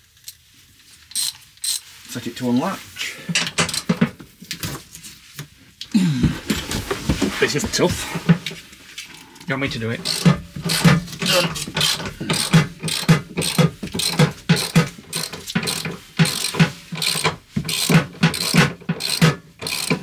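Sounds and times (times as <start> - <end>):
ratchet clicking: 1.1 - 1.8, 10.0 - 20.0.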